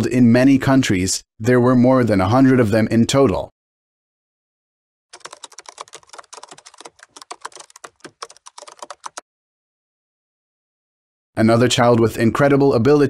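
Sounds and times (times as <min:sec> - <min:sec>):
keyboard typing clicks: 0:05.2 - 0:09.2.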